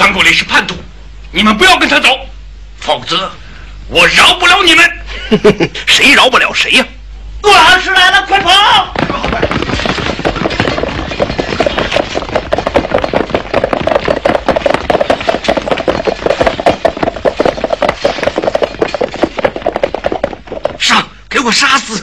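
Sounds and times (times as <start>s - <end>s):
rapid clatter of impacts: 8.4s - 20.9s.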